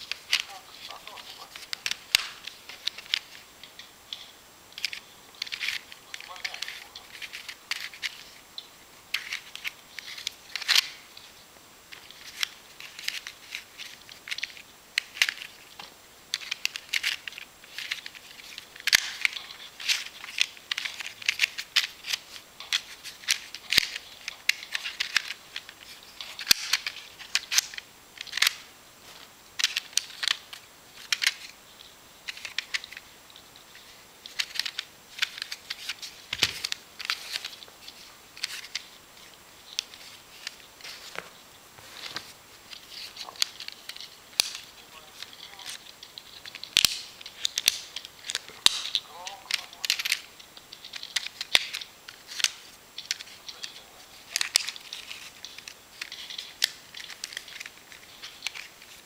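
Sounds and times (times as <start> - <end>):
ribbons rustling: 0.0 - 59.0
plastic panels clicking: 11.9 - 28.7, 29.6 - 31.6, 33.7 - 38.9, 42.0 - 59.0.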